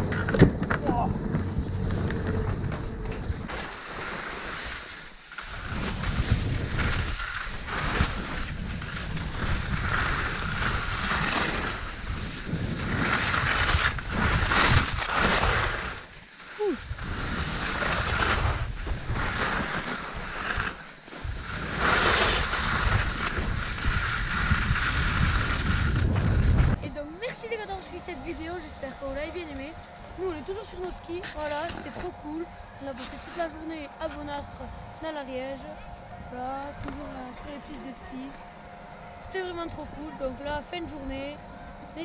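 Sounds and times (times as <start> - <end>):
skis hissing on snow: 3.5 - 26.0
wind on microphone: 5.5 - 27.3.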